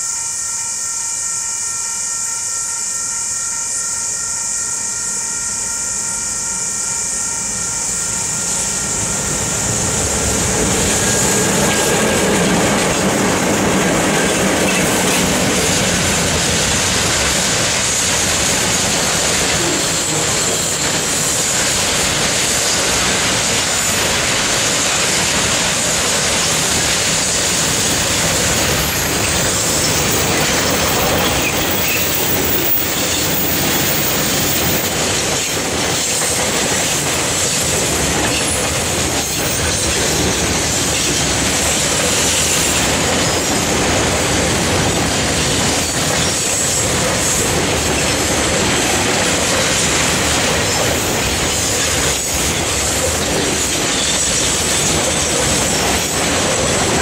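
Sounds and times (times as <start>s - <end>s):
steel wheels running on rails: 0.0s - 57.0s.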